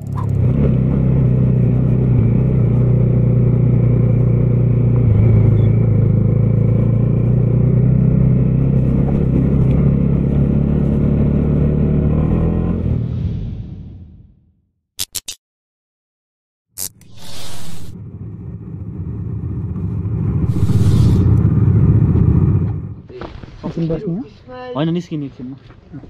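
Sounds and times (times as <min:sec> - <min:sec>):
motorcycle engine running steadily: 0:00.0 - 0:11.8.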